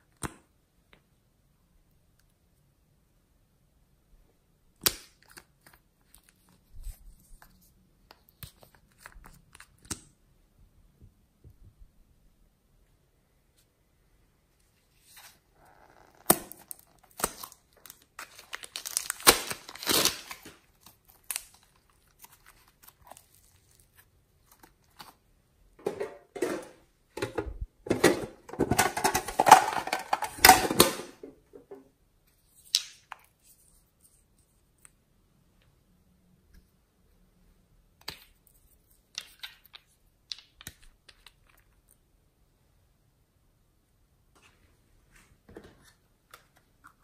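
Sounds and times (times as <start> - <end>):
plastic bag crinkling: 16.6 - 24.0.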